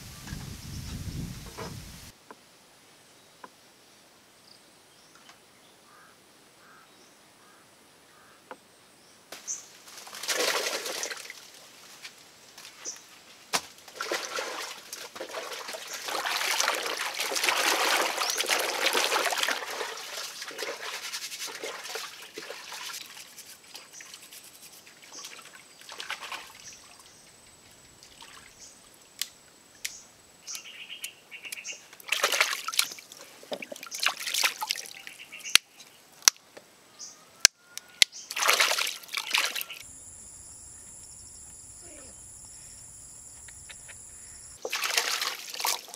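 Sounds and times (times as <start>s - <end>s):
water sloshing and splashing: 10.0s - 11.6s, 13.9s - 24.1s, 25.0s - 27.2s, 32.0s - 35.1s, 38.3s - 39.8s, 44.6s - 45.9s.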